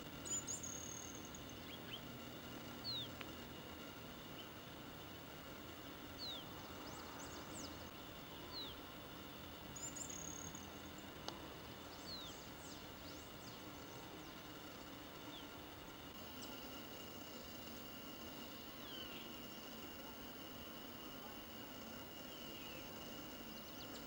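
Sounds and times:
background hiss: 0.0s - 24.0s
faint high chirps: 0.1s - 3.2s, 4.2s - 11.2s, 16.2s - 24.0s.

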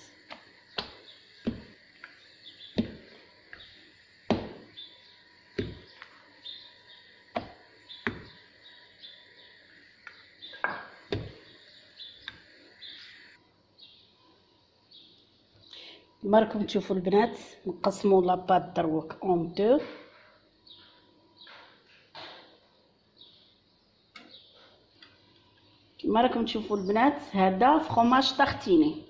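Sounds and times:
rolling pin rolling dough: 0.0s - 13.3s
rolling pin knocking on counter: 0.8s - 1.8s, 2.7s - 3.7s, 4.3s - 4.7s, 5.6s - 6.0s, 7.3s - 8.4s, 10.7s - 11.4s.

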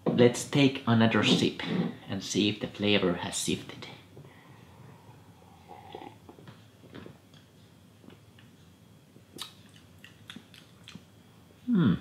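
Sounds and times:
man sipping and swallowing: 5.6s - 7.2s.

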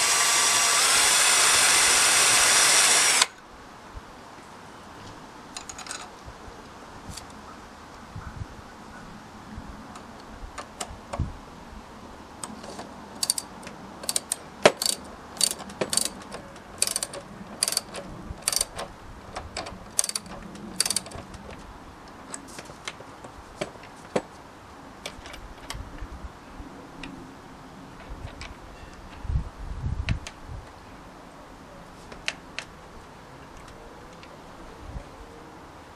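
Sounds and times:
ratchet spanner clicking: 13.2s - 18.9s, 19.6s - 21.2s.

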